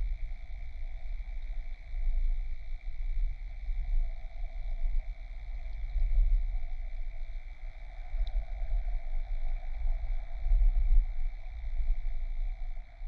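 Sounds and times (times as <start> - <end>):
faint tick: 5.7 - 6.2, 8.1 - 8.5.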